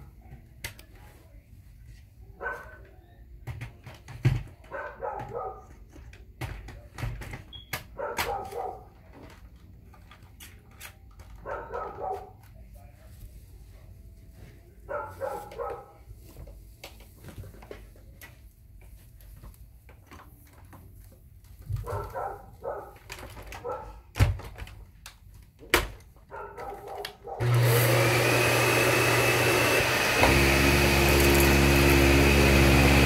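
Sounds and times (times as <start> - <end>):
dog barking: 2.4 - 2.9, 4.6 - 5.8, 7.9 - 9.0, 11.4 - 12.4, 14.9 - 16.1, 21.8 - 23.0, 23.6 - 24.1, 26.3 - 27.4.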